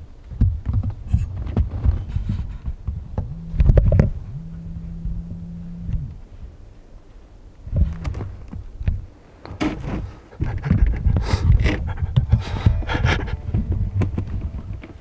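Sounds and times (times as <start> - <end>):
low rumbling handling noise: 0.0 - 15.0
man breathing hard: 10.2 - 13.7.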